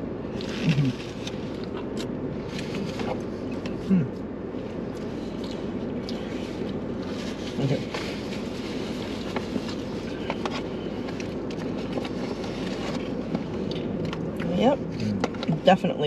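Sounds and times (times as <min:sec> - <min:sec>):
low rumble inside car: 0:00.0 - 0:16.0.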